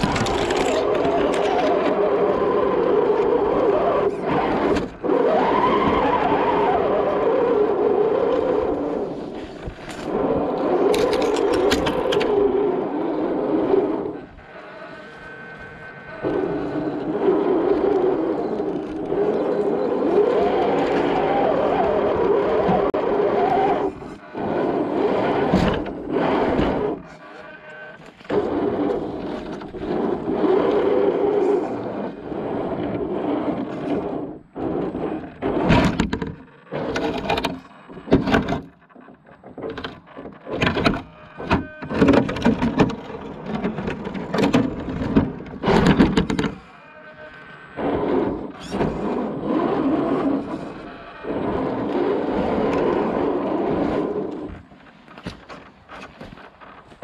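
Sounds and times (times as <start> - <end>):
toy car driving over rough ground: 0.0 - 57.0
knocks thuds and scrapes: 25.2 - 27.2, 35.4 - 46.6.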